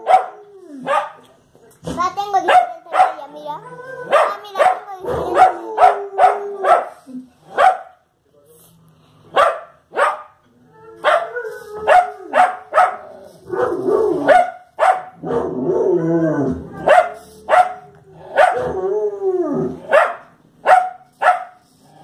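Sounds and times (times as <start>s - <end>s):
drawn-out falling dog barks: 0.0s - 1.2s, 2.4s - 3.3s, 4.1s - 8.0s, 9.3s - 10.4s, 11.9s - 15.6s, 16.8s - 18.7s, 19.9s - 21.6s
dog barking sharply: 7.6s - 7.9s, 9.4s - 10.3s, 14.3s - 15.1s, 19.9s - 21.6s.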